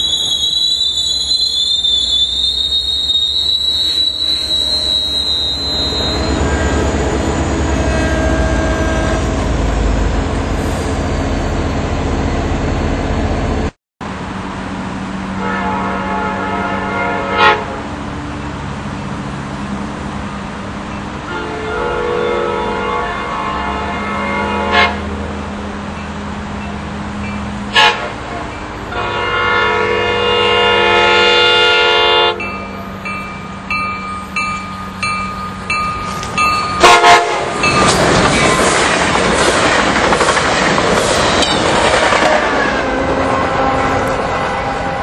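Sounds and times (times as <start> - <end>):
train rushing past: 0.0 - 45.0
train horn blasts: 5.6 - 10.0, 15.4 - 18.0, 21.3 - 25.2, 27.7 - 32.6, 36.1 - 38.0, 42.1 - 45.0
wheels clicking over rail joints: 32.7 - 42.9.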